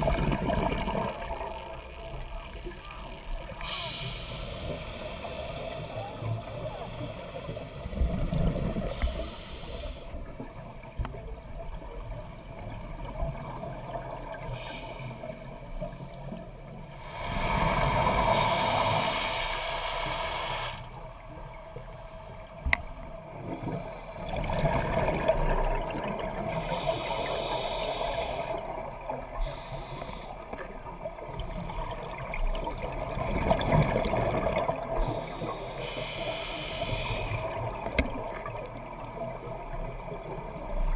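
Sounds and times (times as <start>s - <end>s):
diver inhaling through regulator: 3.6s - 6.0s, 8.9s - 10.2s, 14.4s - 16.3s, 17.0s - 21.0s, 23.5s - 24.6s, 26.5s - 30.6s, 35.0s - 37.6s.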